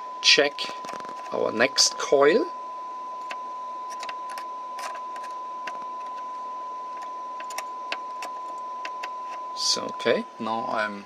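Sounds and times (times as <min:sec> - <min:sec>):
receiver hiss: 0:00.0 - 0:11.0
steady test tone: 0:00.0 - 0:11.0.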